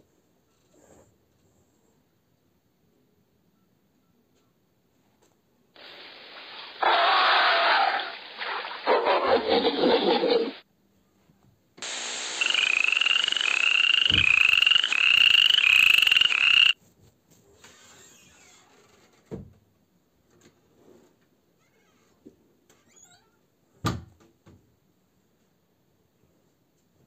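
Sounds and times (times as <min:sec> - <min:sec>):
steady hiss: 0:05.8 - 0:08.4, 0:11.8 - 0:16.8
gorilla vocalising: 0:12.4 - 0:16.8
toad chirping: 0:12.4 - 0:16.8.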